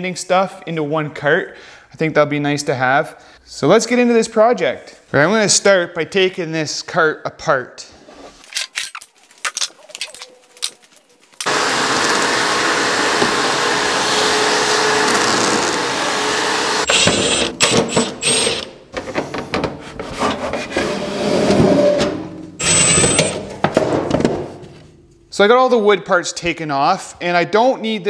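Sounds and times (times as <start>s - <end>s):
wooden panels knocking and clattering: 23.4s - 25.0s.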